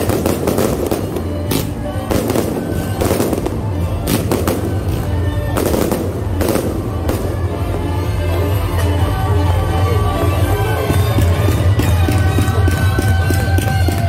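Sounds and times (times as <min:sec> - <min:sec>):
fireworks bursting with loud bangs: 0:00.0 - 0:08.2
music playing: 0:00.0 - 0:14.0.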